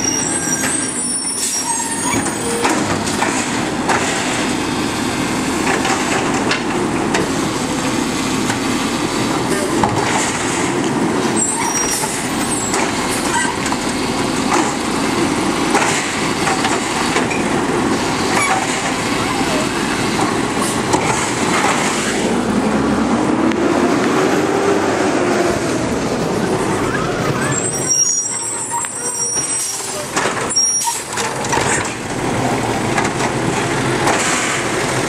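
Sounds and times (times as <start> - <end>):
diesel truck engine running: 2.0 - 35.0
knocks and short squeals: 27.4 - 31.8.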